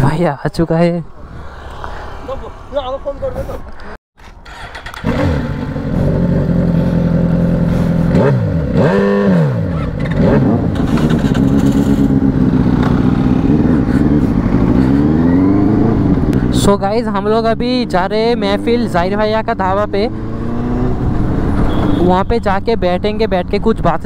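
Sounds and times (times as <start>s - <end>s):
motorcycle engine revving: 4.4s - 16.9s, 17.5s - 22.7s.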